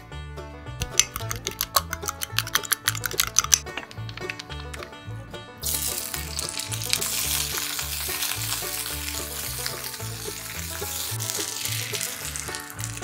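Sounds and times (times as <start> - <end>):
background music with bass: 0.0 - 13.0
wooden utensil stirring: 0.8 - 5.0, 5.6 - 13.0
tomatoes sizzling in oil: 5.6 - 13.0.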